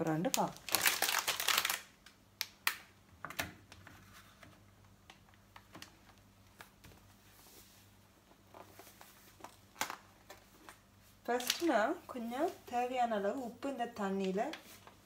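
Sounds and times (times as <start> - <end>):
plastic packet crinkling: 0.1 - 2.2, 8.5 - 11.8.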